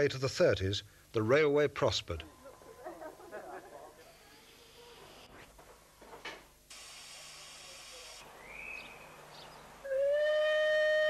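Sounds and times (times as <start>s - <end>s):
steam hissing: 6.7s - 8.8s
steam locomotive whistle: 9.8s - 11.0s.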